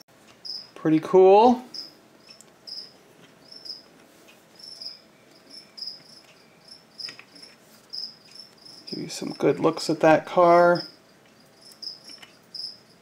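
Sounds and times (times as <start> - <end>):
cricket chirping: 0.4 - 0.8, 1.7 - 3.9, 4.6 - 9.8, 10.5 - 13.0.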